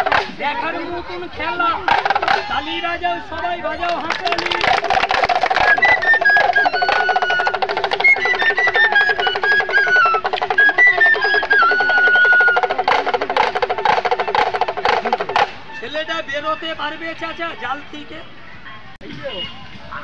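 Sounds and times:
fast pulsing beat: 0:04.3 - 0:15.6
high-pitched flute melody: 0:05.2 - 0:17.4.

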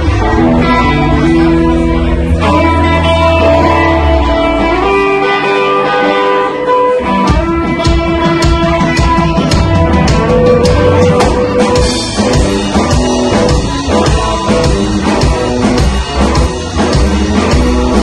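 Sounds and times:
electric guitar: 0:00.0 - 0:18.0
drums and cymbals: 0:07.2 - 0:18.0.

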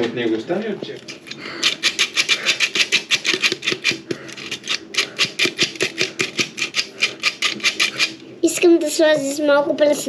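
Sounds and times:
utensil scraping in mixing bowl: 0:01.6 - 0:08.2.

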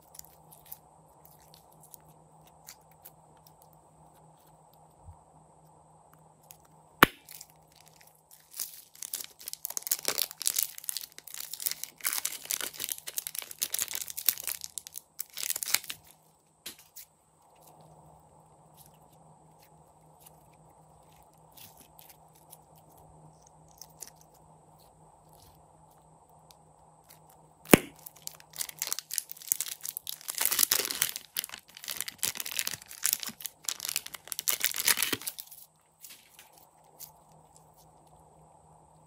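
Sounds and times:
plastic piping bag crinkling: 0:06.6 - 0:17.9, 0:27.1 - 0:37.8.

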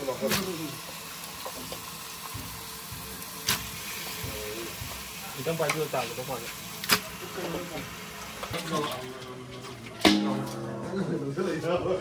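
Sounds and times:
food sizzling: 0:00.0 - 0:11.3
sharp knock: 0:10.1 - 0:10.7.

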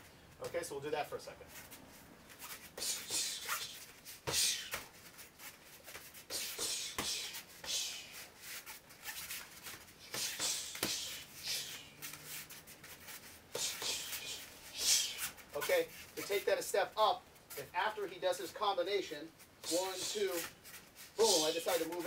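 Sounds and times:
gloved punches and kicks smacking: 0:02.8 - 0:04.9, 0:06.2 - 0:08.1, 0:09.7 - 0:11.8
bare feet scuffing on foam mats: 0:19.7 - 0:22.0.

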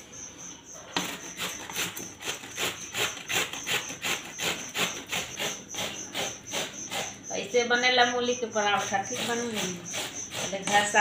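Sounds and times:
radish grated on metal grater: 0:01.0 - 0:07.2, 0:08.7 - 0:11.0.

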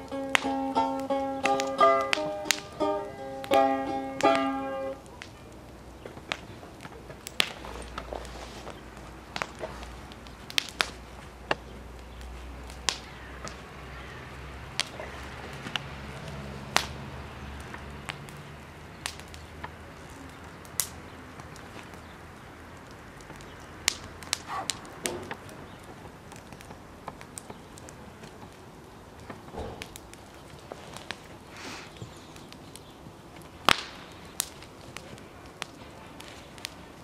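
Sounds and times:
wood fire crackling: 0:00.0 - 0:37.0
balalaika plucked tune: 0:00.1 - 0:04.9.

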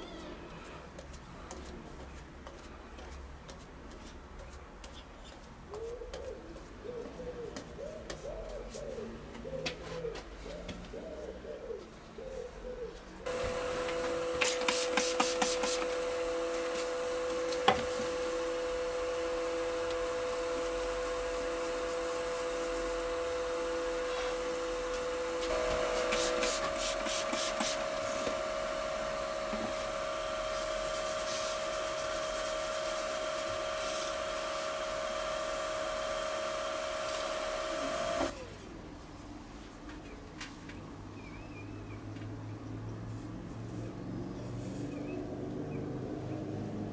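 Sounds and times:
wood lathe humming: 0:13.3 - 0:38.3.

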